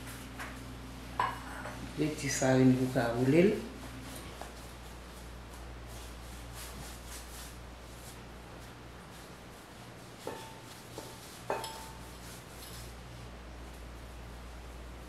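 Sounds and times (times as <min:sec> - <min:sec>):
low steady hum: 0:00.0 - 0:15.0
hands rubbing bread dough: 0:03.4 - 0:15.0.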